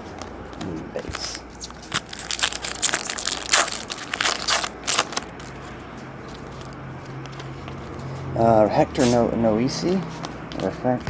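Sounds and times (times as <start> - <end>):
foil wrapper tearing and crinkling: 1.6 - 5.5.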